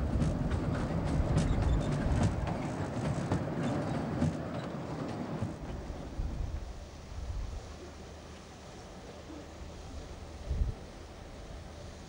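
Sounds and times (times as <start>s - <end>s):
wheels clicking and rattling: 0.0s - 5.8s
ride train rumbling on track: 0.0s - 12.0s.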